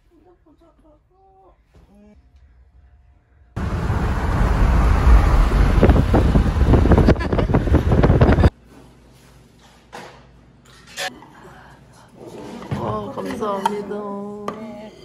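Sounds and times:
wind buffeting microphone: 0:03.6 - 0:08.5.

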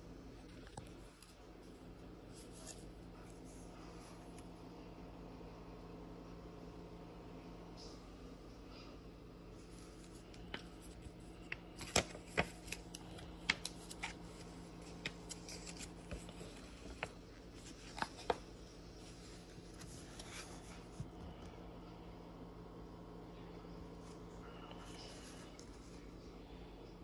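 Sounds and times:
paper booklet crinkling: 0:00.5 - 0:04.5, 0:09.5 - 0:21.4.

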